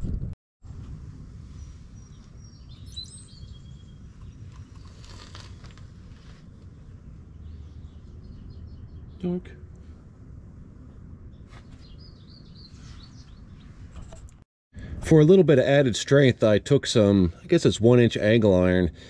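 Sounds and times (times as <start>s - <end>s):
low background rumble: 0.0s - 15.3s
faint bird chirps: 1.5s - 5.0s, 11.3s - 13.8s.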